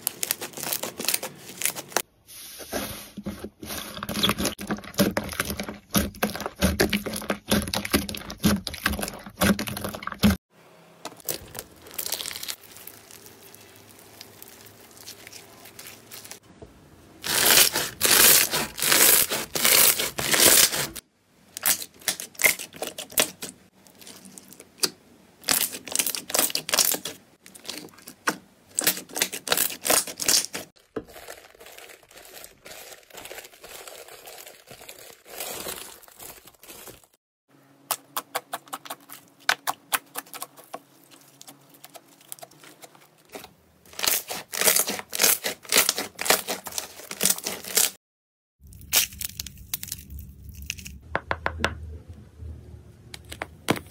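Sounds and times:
rubbing and crinkling paper: 0.0 - 10.4, 11.2 - 16.4, 17.2 - 21.0, 28.8 - 37.2, 38.4 - 48.0
slime crackling and popping: 11.2 - 16.4.

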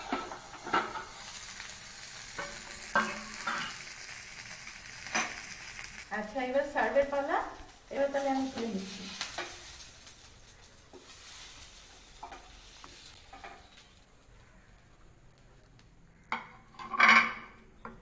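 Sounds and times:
faint sizzling in frying pan: 0.0 - 18.0.

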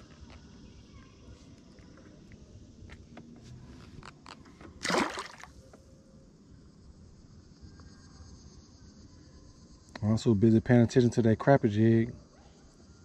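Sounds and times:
fish splashing into water: 4.8 - 5.6.

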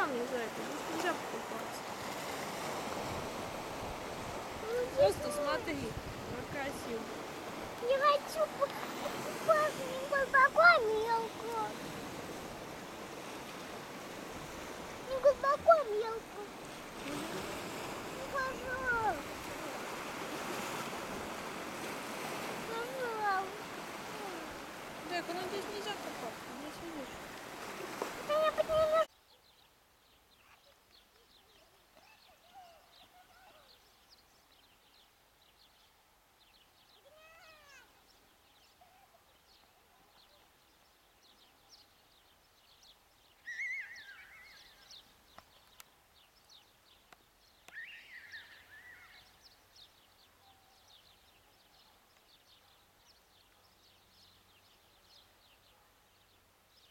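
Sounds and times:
faint outdoor ambience: 0.0 - 56.9
animal calls: 43.4 - 44.9, 47.7 - 49.4.

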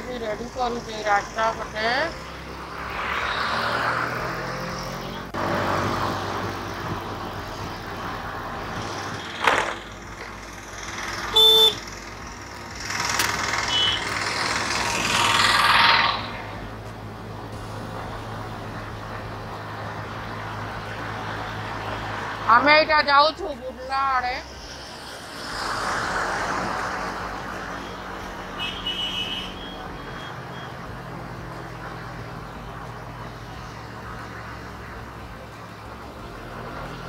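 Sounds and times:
passing vehicles: 0.0 - 37.0
vehicle interior hum: 0.0 - 37.0
car horn blast: 11.3 - 11.8, 13.6 - 14.1, 28.6 - 29.8.

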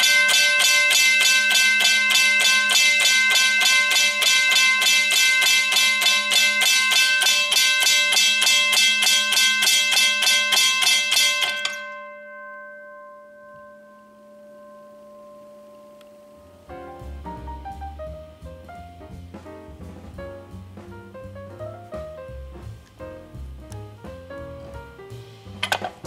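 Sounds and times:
railway crossing bell ringing: 0.0 - 16.5.

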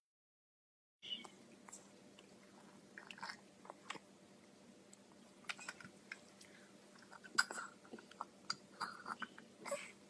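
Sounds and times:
toddler sipping soup: 1.3 - 4.1, 5.0 - 10.0.

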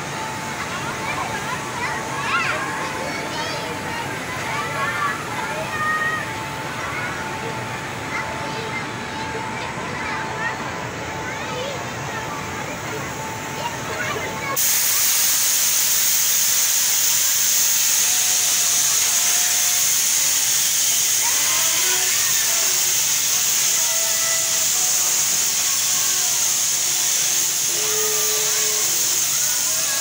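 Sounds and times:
loud high-pitched hiss: 14.4 - 30.0.

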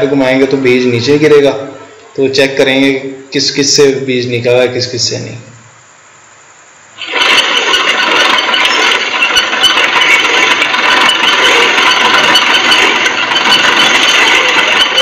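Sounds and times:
seed drill mechanism rattling: 7.0 - 15.0.

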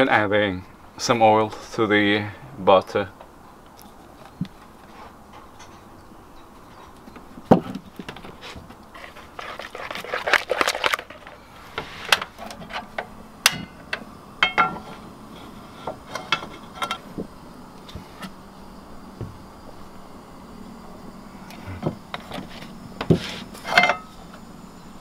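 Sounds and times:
scraping and rustling: 4.2 - 5.9, 6.8 - 13.0, 21.7 - 24.0.

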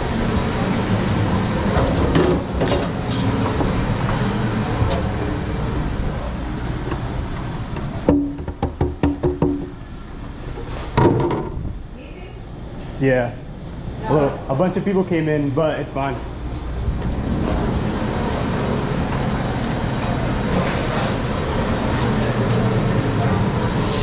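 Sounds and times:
busy kitchen din: 0.0 - 24.0
loud knock of plastic pan: 8.1 - 9.7.

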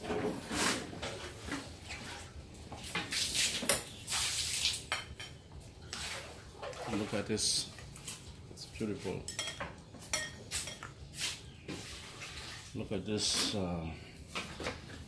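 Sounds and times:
spoon and chopsticks clinking: 9.2 - 10.9.

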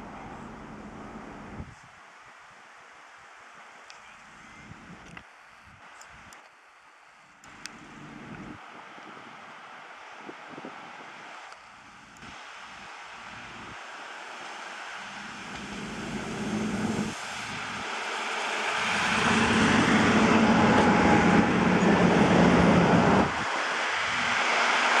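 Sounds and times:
diesel train passing: 0.0 - 1.6, 10.8 - 25.0.

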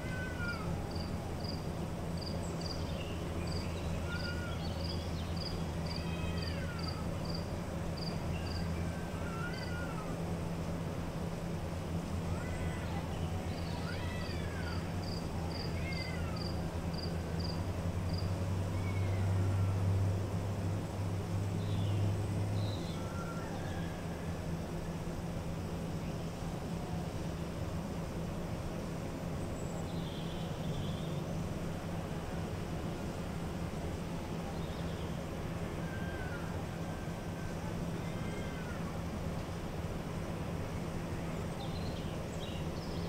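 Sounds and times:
cat meowing: 0.0 - 0.7, 4.1 - 4.6, 5.8 - 7.1, 9.2 - 10.1, 12.3 - 13.1, 13.7 - 14.8, 15.5 - 16.5, 18.8 - 19.7, 38.0 - 38.9
ventilation hum: 0.0 - 43.0
faint high bird call: 2.6 - 10.2, 22.6 - 24.4, 29.6 - 31.2, 34.3 - 39.0.

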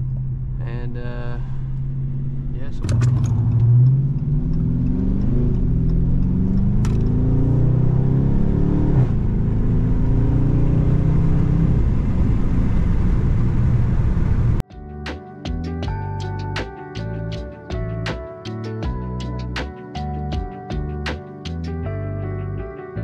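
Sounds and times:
car engine accelerating: 0.0 - 14.6.

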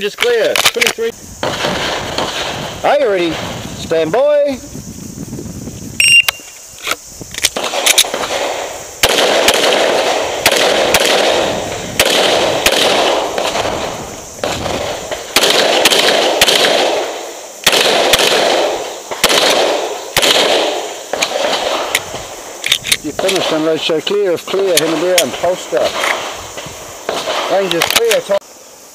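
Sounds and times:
pistol shots with ringing: 7.5 - 22.0.

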